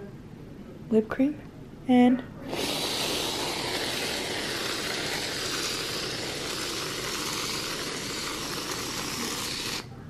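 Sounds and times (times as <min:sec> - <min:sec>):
aerosol can spraying hiss: 0:02.5 - 0:09.9.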